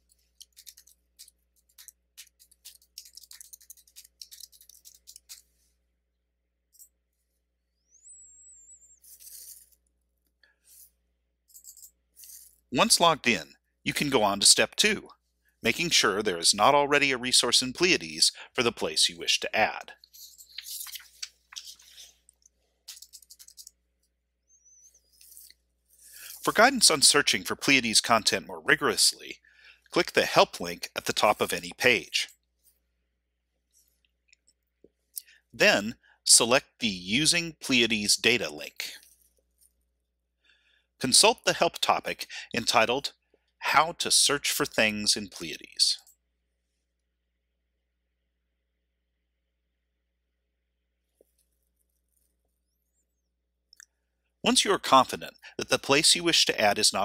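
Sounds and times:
faint keyboard typing: 0.0 - 5.6, 19.9 - 25.6
keyboard keys clicking: 0.4 - 5.4.

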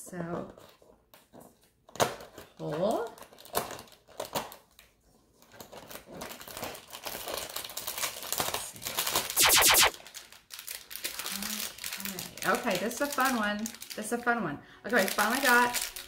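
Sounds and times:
plastic bag crinkling rattle: 10.0 - 14.2, 14.9 - 16.0.

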